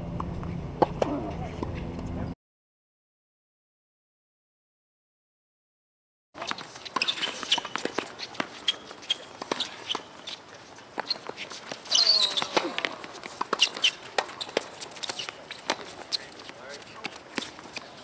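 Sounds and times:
tennis balls bouncing and struck: 0.1 - 1.9, 6.4 - 18.0.

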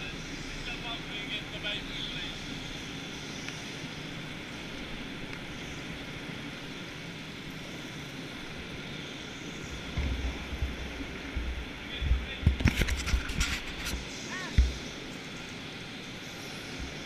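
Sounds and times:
go-kart engine and motion noise: 0.0 - 17.0
low thumps: 9.7 - 12.7.

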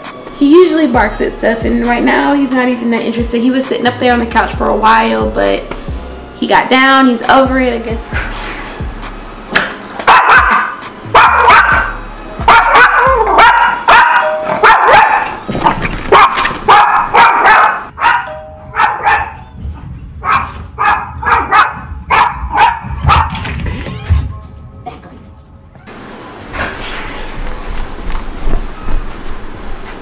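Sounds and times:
background music: 0.0 - 15.5
small dog barking: 10.1 - 11.9, 12.5 - 19.4, 20.2 - 23.4.

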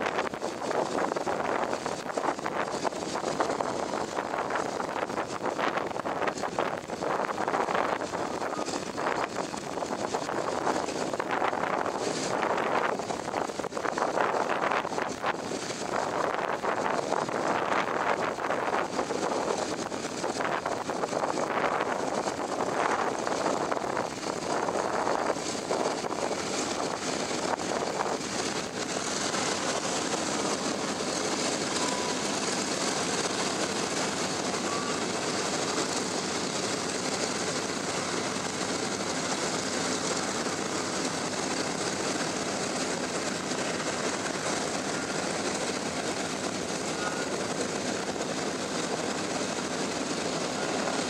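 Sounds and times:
piston aircraft engines droning: 0.0 - 51.0
wind noise on microphone: 0.0 - 51.0.

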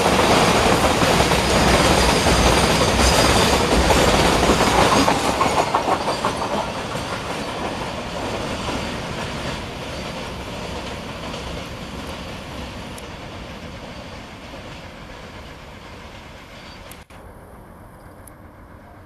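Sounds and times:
train wagons rolling on rails: 0.0 - 19.0.

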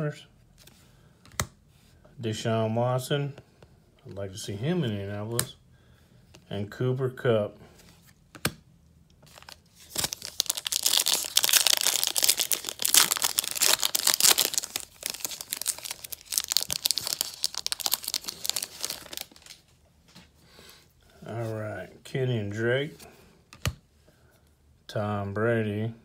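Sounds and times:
foil wrapper crinkling and tearing: 9.3 - 19.7.

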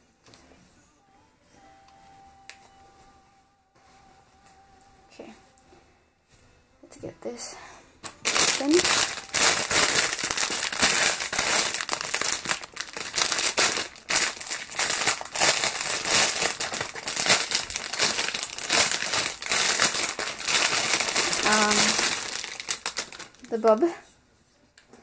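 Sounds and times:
plastic bag crinkling: 8.1 - 23.9.

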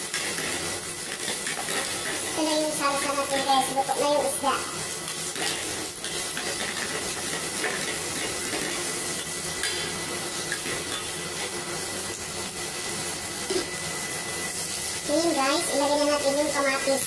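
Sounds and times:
wooden spatula scraping pan: 0.0 - 4.4, 5.1 - 11.6
vegetables sizzling in oil: 0.0 - 17.0.

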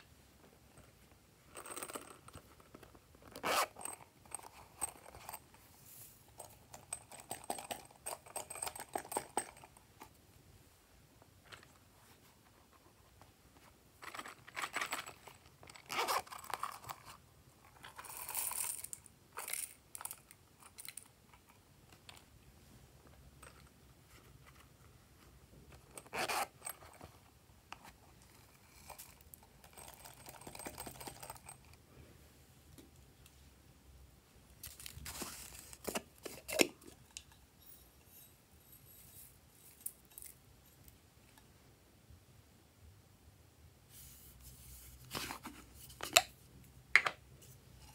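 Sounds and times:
silicone pouches rustling and rattling: 14.0 - 21.1, 28.2 - 31.8, 34.6 - 37.1.

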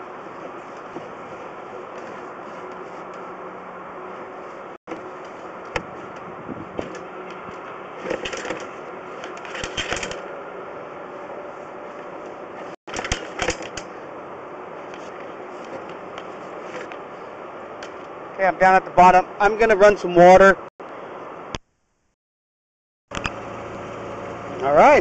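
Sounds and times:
steady hum: 0.0 - 22.1
push cable and reel rattling: 4.9 - 10.3, 12.9 - 14.0.

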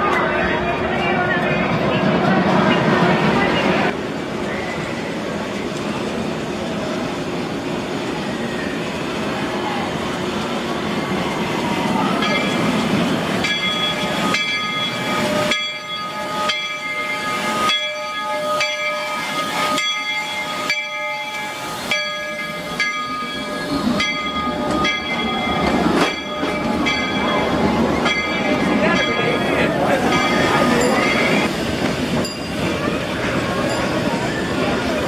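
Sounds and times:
steam locomotive hiss and rumble: 0.0 - 35.0
locomotive bell ringing: 12.2 - 12.8, 13.4 - 31.5, 32.2 - 35.0.

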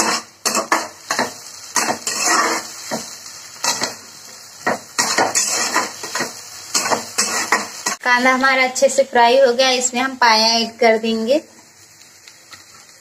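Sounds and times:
metal spatula scraping a pan: 0.0 - 4.0, 4.7 - 8.0
faint sizzle: 0.0 - 13.0.

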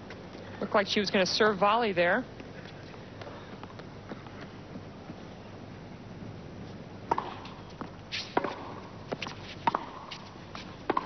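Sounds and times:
tennis ball bouncing: 7.0 - 11.0
tennis ball struck by rackets: 7.0 - 11.0.

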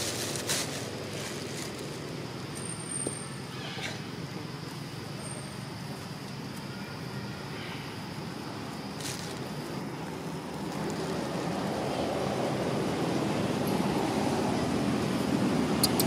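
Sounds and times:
outdoor background rumble: 0.0 - 16.0.

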